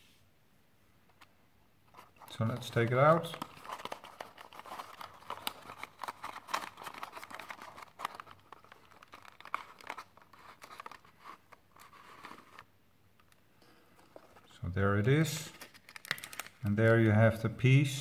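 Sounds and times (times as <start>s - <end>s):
cardboard box crinkling: 1.9s - 12.7s, 14.0s - 14.5s, 15.5s - 16.6s.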